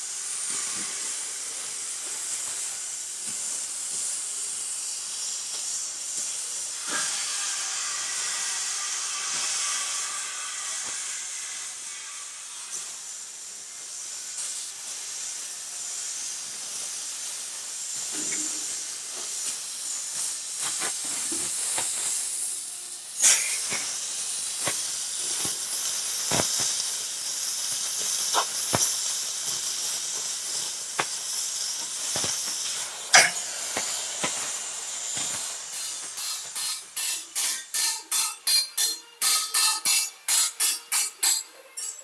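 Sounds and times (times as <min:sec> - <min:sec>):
cutting torch hissing: 0:00.0 - 0:42.0
sharp pops: 0:26.2 - 0:26.9, 0:27.8 - 0:30.3, 0:30.9 - 0:37.1.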